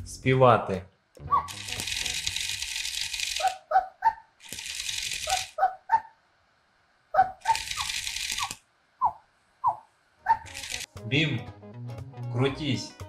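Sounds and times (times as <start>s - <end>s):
electronic yips from toy speaker: 7.2s - 10.6s.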